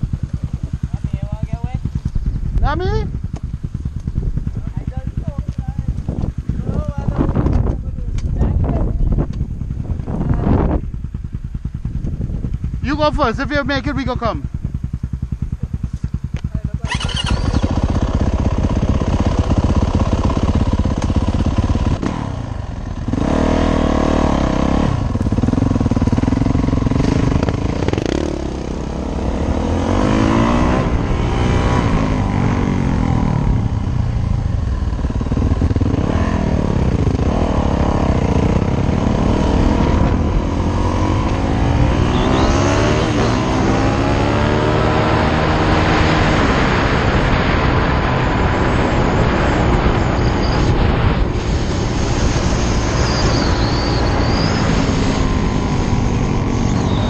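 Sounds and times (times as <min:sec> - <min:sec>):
dirt bike engine revving: 0:12.8 - 0:57.0.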